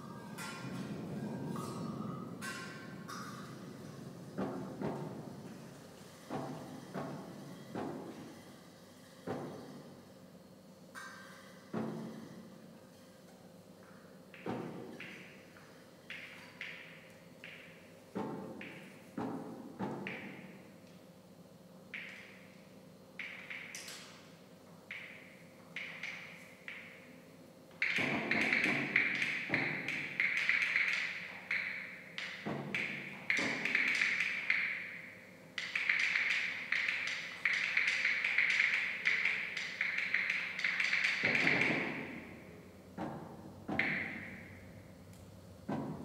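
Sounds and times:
amplified taps on objects: 0:14.3 - 0:20.6, 0:27.8 - 0:35.0, 0:35.6 - 0:42.4, 0:43.0 - 0:44.7, 0:45.7 - 0:46.0.

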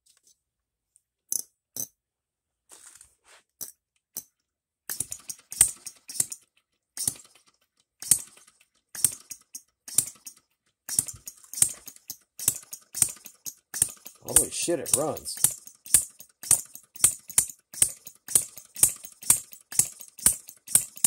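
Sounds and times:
model engine firing: 0:04.9 - 0:06.4, 0:07.0 - 0:21.0.

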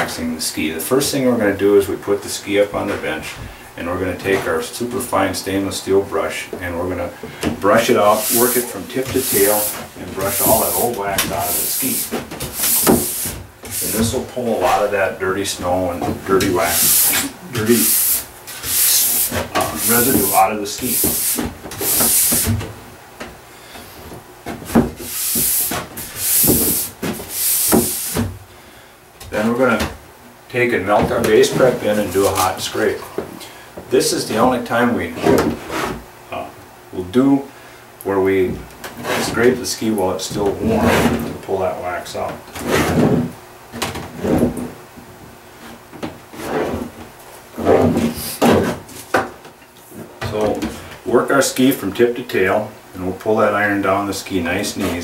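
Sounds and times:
wax scraping on hot plate: 0:07.8 - 0:14.9, 0:16.4 - 0:22.5
steel brush scrubbing ski base: 0:07.9 - 0:14.9, 0:16.5 - 0:22.5, 0:25.0 - 0:28.2.

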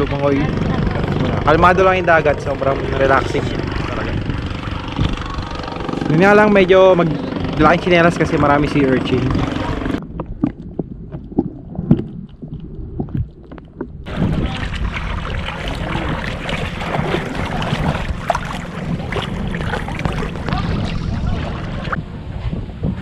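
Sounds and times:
wind on microphone: 0:00.0 - 0:23.0
muffled underwater sound: 0:09.1 - 0:22.1
water sloshing around wading legs: 0:09.4 - 0:22.0
underwater clicks and knocks: 0:10.0 - 0:14.9, 0:16.6 - 0:21.0.

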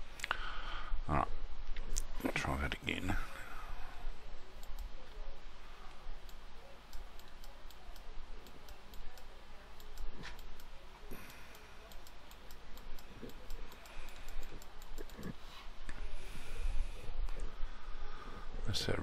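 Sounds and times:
computer mouse clicking: 0:04.6 - 0:04.9, 0:06.2 - 0:16.0.

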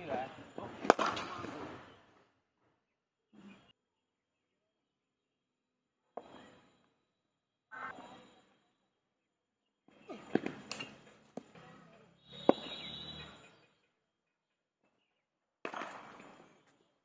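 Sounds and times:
cricket bat striking ball: 0:00.8 - 0:01.6, 0:12.4 - 0:12.7.

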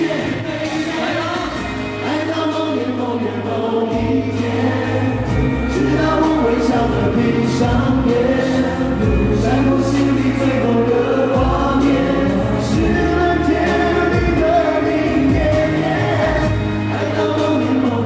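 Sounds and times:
backing music: 0:00.0 - 0:18.0
male group singing: 0:00.0 - 0:18.0
bass line: 0:03.9 - 0:18.0.

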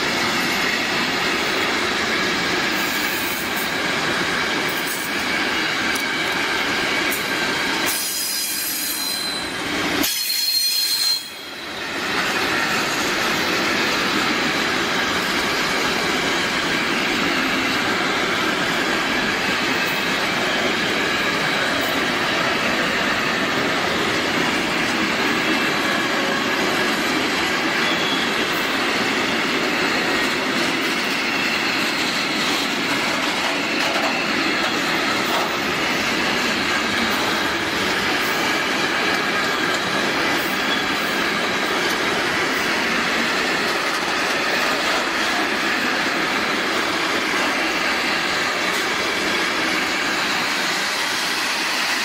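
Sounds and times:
train wheels rumbling and rattling: 0:00.0 - 0:52.0
high wheel squeal: 0:07.8 - 0:13.4, 0:27.5 - 0:46.0.

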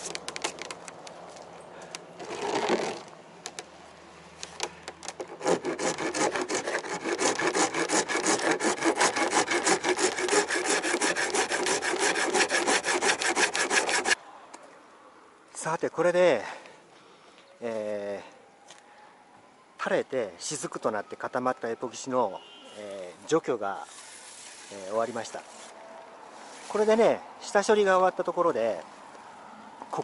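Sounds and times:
hand file rasping epoxy: 0:05.2 - 0:14.2.

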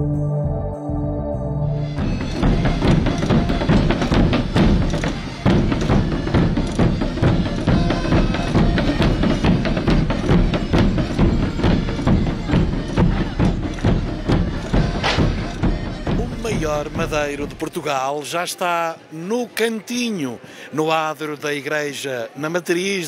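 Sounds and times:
bass drums beating: 0:00.0 - 0:17.7
smaller drums beating: 0:01.8 - 0:17.8.

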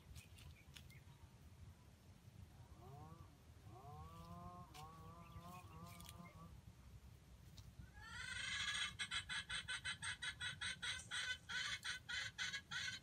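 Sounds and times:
hen clucking: 0:02.8 - 0:06.6, 0:07.8 - 0:13.0.

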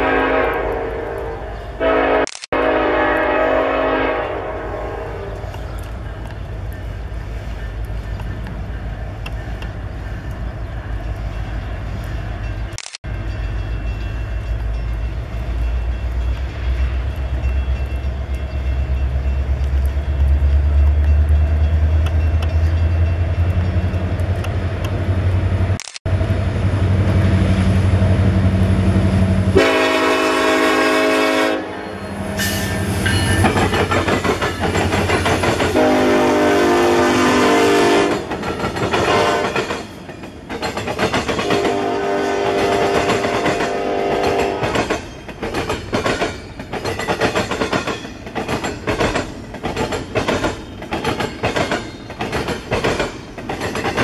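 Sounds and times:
train air horn blasts: 0:00.0 - 0:05.6, 0:29.4 - 0:33.4, 0:35.7 - 0:38.3, 0:39.0 - 0:39.6, 0:41.4 - 0:44.8
diesel locomotive engine rumble: 0:00.0 - 0:54.0
freight train rolling by: 0:00.0 - 0:54.0.

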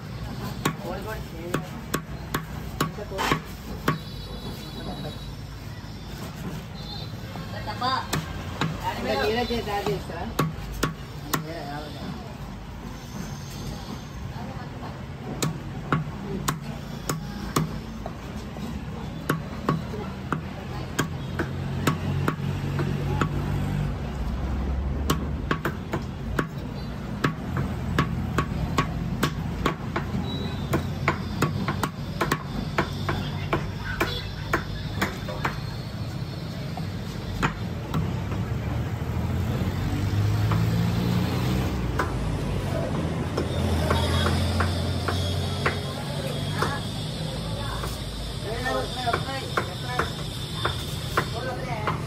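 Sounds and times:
cleaver chopping on wooden block: 0:01.5 - 0:04.0, 0:10.3 - 0:11.5, 0:15.4 - 0:17.8, 0:19.2 - 0:23.5, 0:25.0 - 0:26.6, 0:27.2 - 0:35.6, 0:43.4 - 0:45.9, 0:49.1 - 0:52.0.

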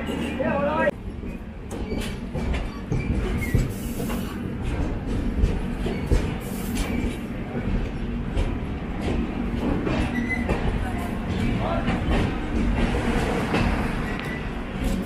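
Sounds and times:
train rumbling: 0:00.0 - 0:15.0.

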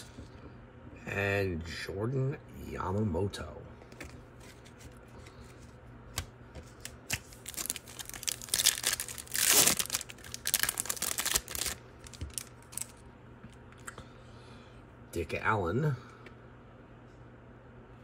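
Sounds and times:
card pack wrapper crinkling: 0:06.1 - 0:13.0.

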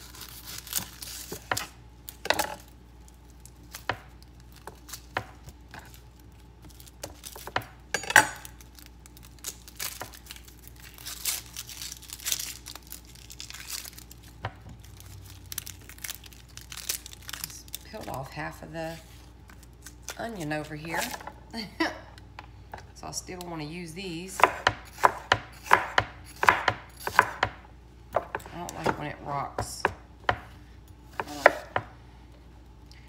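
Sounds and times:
onion skin crackling and tearing: 0:00.0 - 0:07.5, 0:08.4 - 0:20.4.

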